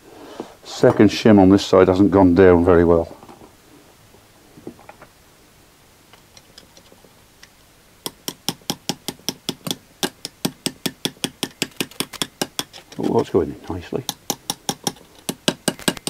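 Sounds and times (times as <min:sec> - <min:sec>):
hammer tapping metal screwdriver: 0:08.1 - 0:13.2, 0:14.0 - 0:16.0.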